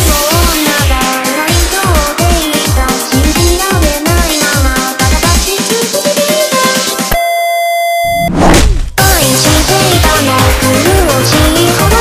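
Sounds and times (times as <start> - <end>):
electronic music with driving beat: 0.0 - 7.2, 9.0 - 12.0
steady electronic beep tone: 7.1 - 8.3.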